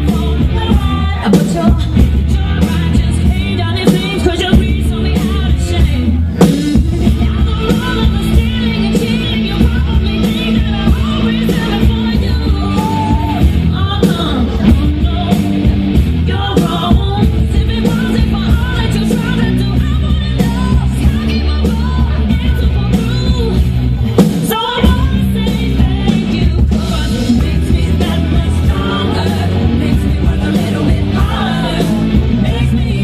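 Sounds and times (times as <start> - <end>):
loud rock music with singing: 0.0 - 33.0.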